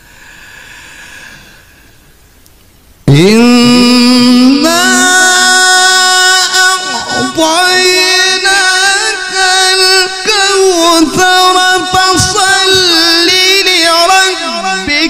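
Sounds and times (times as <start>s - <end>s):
man reciting melodically: 3.0s - 15.0s.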